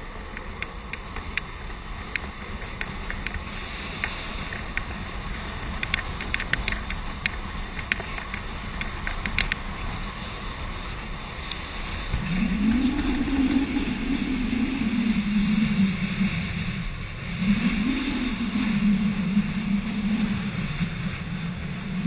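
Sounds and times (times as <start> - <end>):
wheels rolling on asphalt: 0.0 - 14.6
sharp clicks and ticks: 0.3 - 9.7.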